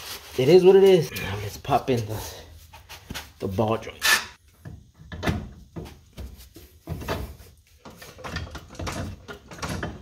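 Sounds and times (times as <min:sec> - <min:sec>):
metal clunking and scraping on metal: 0:04.0 - 0:10.0.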